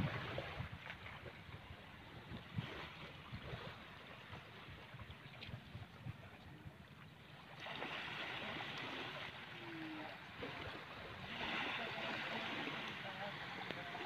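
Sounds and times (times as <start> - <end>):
shallow water at shoreline: 0.0 - 14.0
wind: 0.0 - 14.0.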